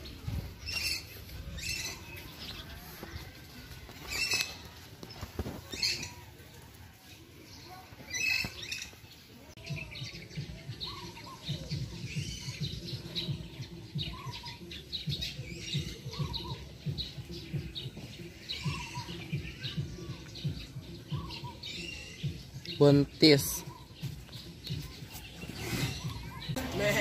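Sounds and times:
birds chirping: 0.0 - 27.0.

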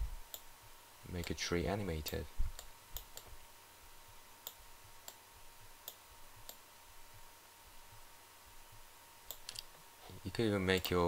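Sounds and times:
computer mouse clicks: 2.1 - 3.3, 9.3 - 9.7, 10.8 - 11.0.

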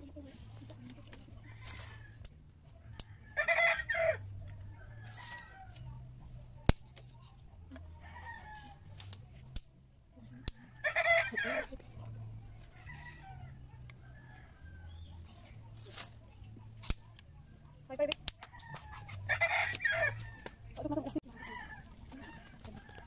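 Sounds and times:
rooster crowing: 3.2 - 4.2, 18.6 - 20.5
wood fire snapping: 6.6 - 7.1, 9.0 - 9.8, 16.8 - 17.3.

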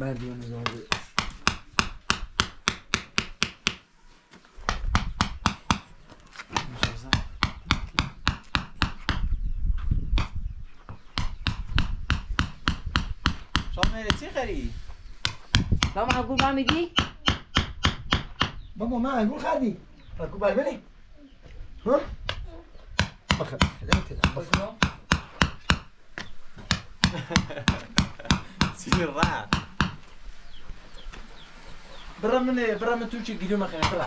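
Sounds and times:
stones tapping on wet cement: 4.7 - 9.3, 23.0 - 30.1, 33.8 - 34.0.

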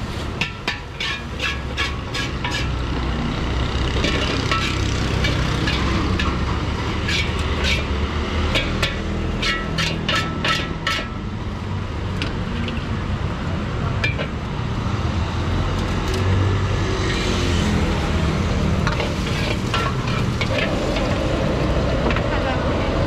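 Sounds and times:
rice sizzling and scraping: 0.0 - 3.0, 4.0 - 11.2, 18.6 - 21.7
metal ladle clanking on wok: 0.4 - 2.8, 4.0 - 7.9, 8.5 - 11.2, 18.8 - 21.4.

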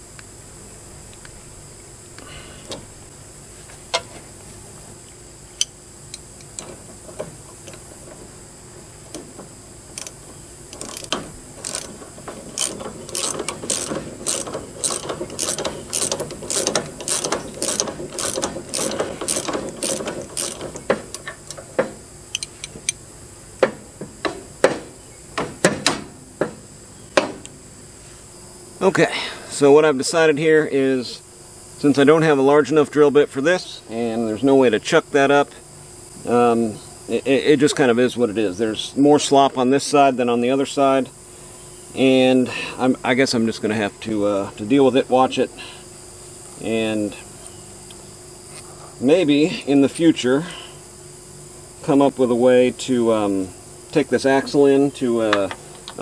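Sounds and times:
ratchet wrench clicking: 10.0 - 21.6.

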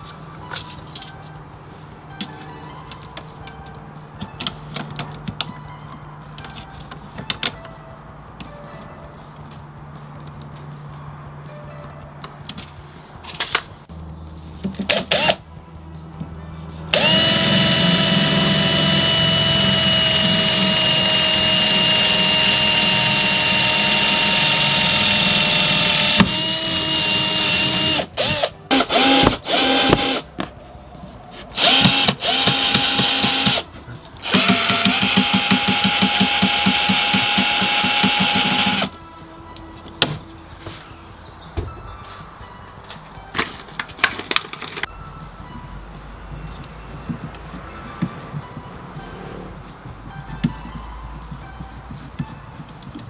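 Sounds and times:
cordless drill boring wood: 17.0 - 30.2, 31.6 - 33.6, 34.2 - 38.9.

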